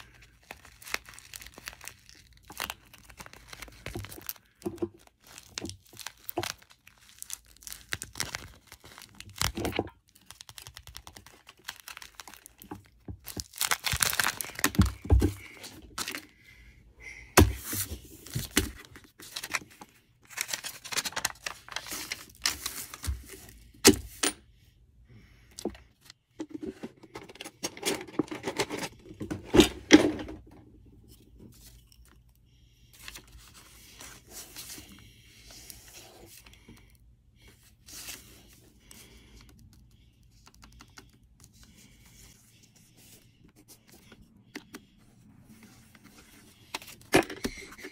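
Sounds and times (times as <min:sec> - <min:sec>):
packaging crinkling and rustling: 0:00.0 - 0:16.3, 0:17.6 - 0:23.6.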